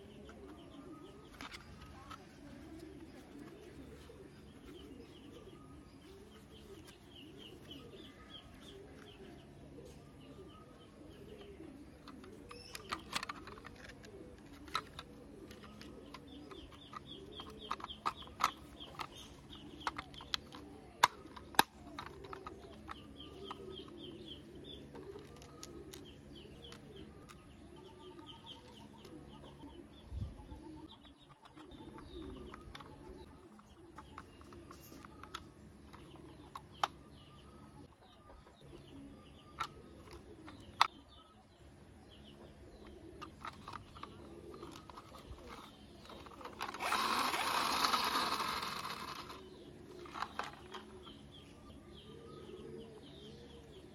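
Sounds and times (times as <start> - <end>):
pigeons cooing: 0.0 - 53.9
small birds chirping: 0.0 - 53.9
plastic toy parts clicking: 0.5 - 2.3, 12.0 - 23.8, 24.9 - 27.4, 31.2 - 37.1, 43.2 - 51.3.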